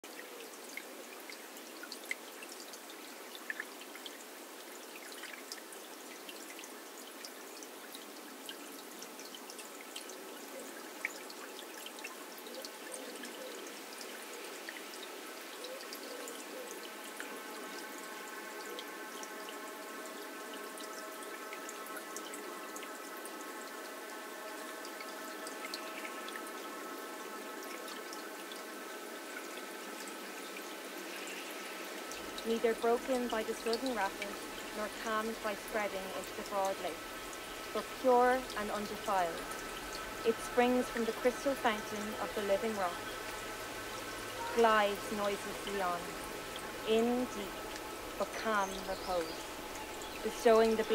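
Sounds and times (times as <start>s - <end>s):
sharp water drips: 0.0s - 50.9s
water trickling and pouring: 0.0s - 50.9s
held synth chord: 32.2s - 50.2s.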